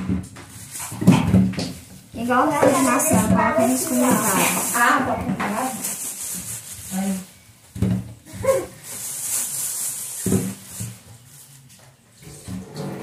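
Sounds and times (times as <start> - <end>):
scraping and rubbing: 0.0 - 7.5, 8.4 - 13.0
person speaking: 2.2 - 5.8.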